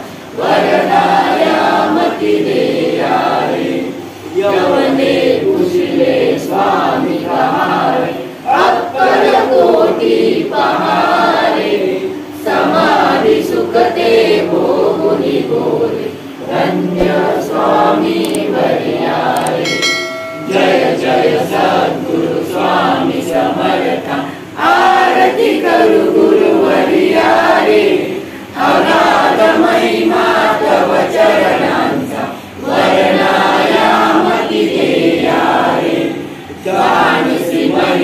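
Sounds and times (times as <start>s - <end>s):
group singing devotional song: 0.0s - 38.0s
brief ringing tone: 19.6s - 21.1s.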